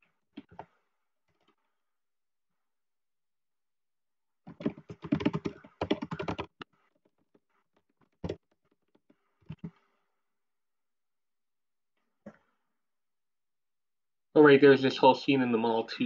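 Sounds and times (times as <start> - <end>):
typing on computer keyboard: 4.5 - 6.7, 8.0 - 9.7.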